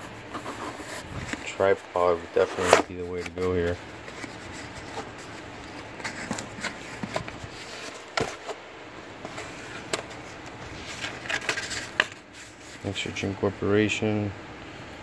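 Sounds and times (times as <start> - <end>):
cardboard box handling: 0.1 - 1.8, 2.4 - 8.6.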